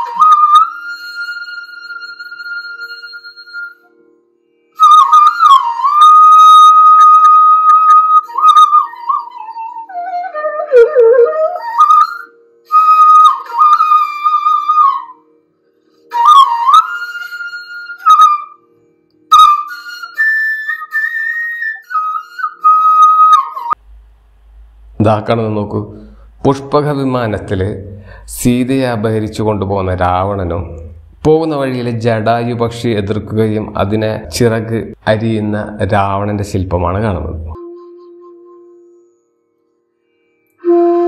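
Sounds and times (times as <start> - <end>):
solo flute melody: 0.0 - 23.8, 37.5 - 41.0.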